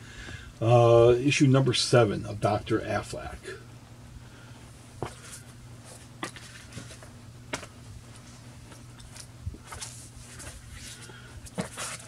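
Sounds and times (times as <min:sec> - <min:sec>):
steady low hum: 0:00.0 - 0:12.0
paper rustling: 0:05.0 - 0:12.0.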